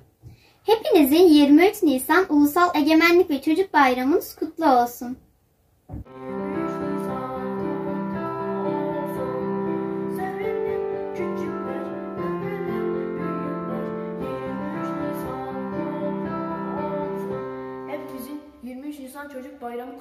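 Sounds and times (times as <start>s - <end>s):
slow digital piano piece: 6.0s - 19.1s.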